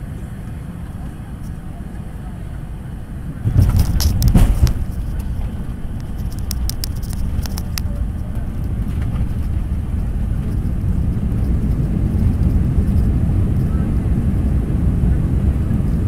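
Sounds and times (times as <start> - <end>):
jet engines roaring: 0.0 - 16.0
runway rumble: 0.0 - 16.0
light rattles: 3.4 - 16.0
thump: 3.5 - 4.8.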